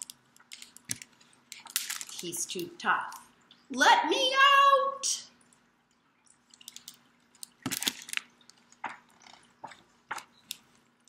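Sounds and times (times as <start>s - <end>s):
book handling clicks and rustles: 0.0s - 2.3s, 6.5s - 10.8s
faint steady hum: 0.0s - 11.0s.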